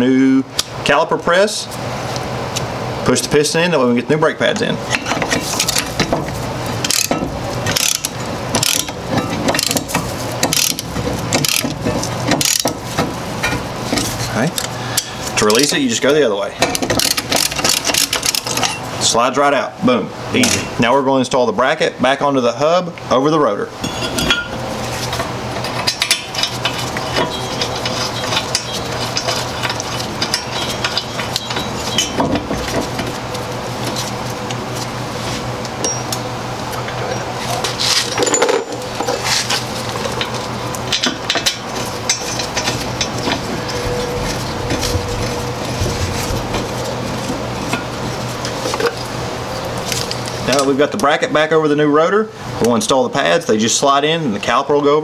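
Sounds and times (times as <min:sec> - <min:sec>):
steady low hum: 0:00.0 - 0:54.6
ratchet wrench clicking: 0:06.8 - 0:09.0, 0:09.6 - 0:09.9, 0:10.5 - 0:10.8, 0:11.4 - 0:11.7.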